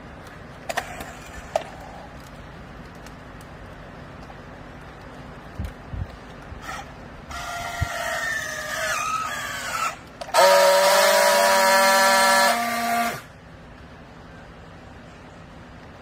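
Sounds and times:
strapping tool motor whine: 0:08.4 - 0:13.3.

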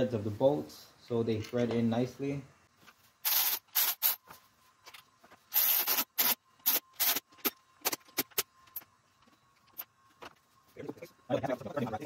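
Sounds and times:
cordless electric ratchet: 0:03.2 - 0:04.2, 0:05.5 - 0:08.5.

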